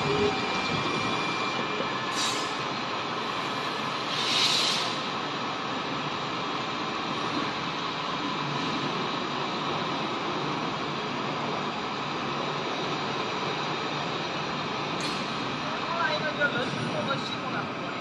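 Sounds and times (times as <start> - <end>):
brief hissing: 2.1 - 2.6, 3.3 - 5.1.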